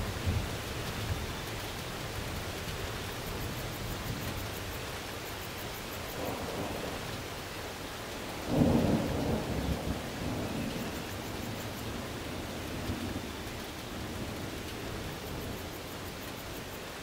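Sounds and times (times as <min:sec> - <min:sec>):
rain falling: 0:00.0 - 0:17.0
thunder rumble: 0:08.4 - 0:16.2.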